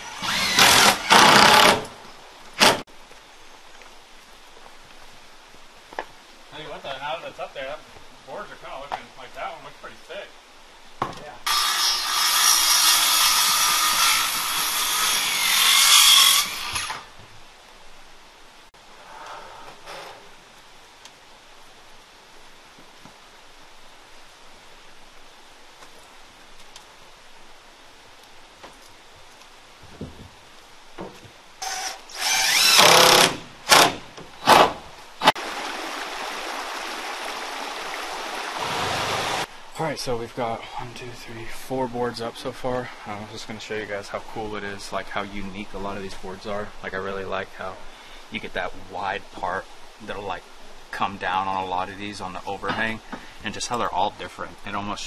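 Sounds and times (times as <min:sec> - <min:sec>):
power saw cutting wood: 0:00.0 - 0:01.9, 0:11.5 - 0:17.1, 0:31.6 - 0:34.8.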